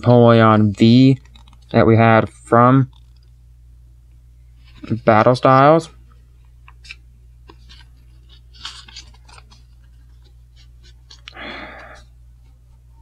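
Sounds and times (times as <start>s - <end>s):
plastic card sleeve rustling: 0.6s - 1.8s, 2.8s - 3.4s, 4.6s - 12.6s.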